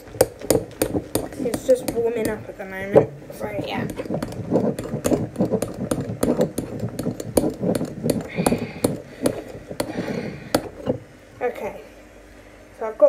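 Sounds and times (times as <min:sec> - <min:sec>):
slime squelching and popping: 0:00.0 - 0:02.4, 0:03.8 - 0:10.8.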